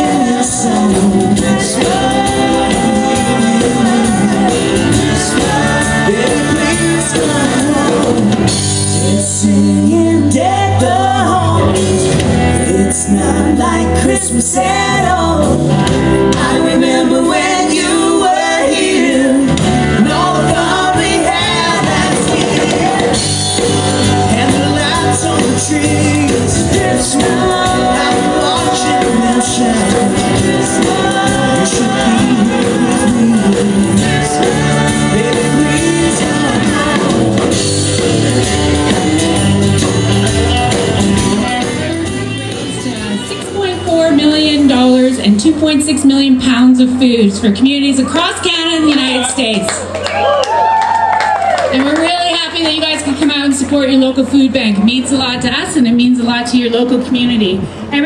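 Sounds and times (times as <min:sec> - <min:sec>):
person singing: 0:00.0 - 0:43.6
country band playing: 0:00.0 - 0:58.0.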